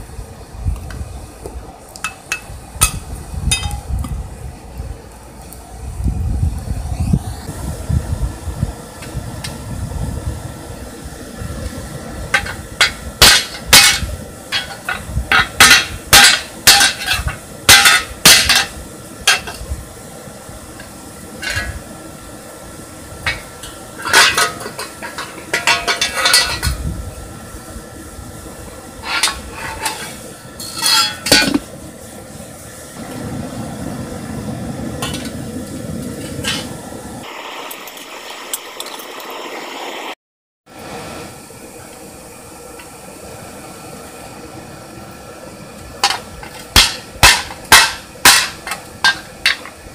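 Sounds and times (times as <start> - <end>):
low steady rumble: 0.0 - 37.3
hammer striking steel on anvil: 12.4 - 18.7, 46.0 - 49.7.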